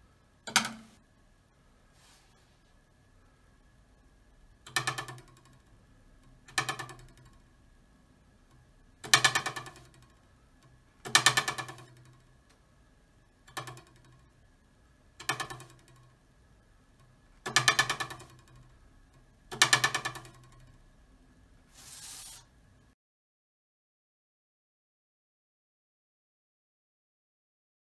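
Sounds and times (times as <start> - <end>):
metal ruler twanging on table: 0.5 - 1.0, 4.7 - 5.7, 6.5 - 7.4, 9.0 - 10.1, 11.1 - 12.2, 13.5 - 14.2, 15.2 - 16.1, 17.5 - 18.7, 19.5 - 20.8
faint short hiss: 21.7 - 22.5.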